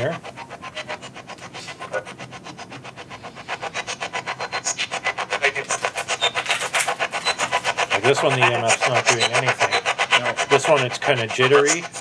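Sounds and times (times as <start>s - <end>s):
radio static bursts and fragments: 5.4s - 5.8s.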